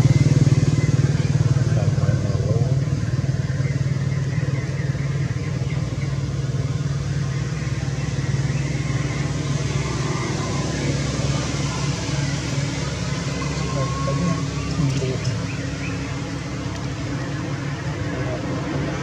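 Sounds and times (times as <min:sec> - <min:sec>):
engine running steadily: 0:00.0 - 0:19.0.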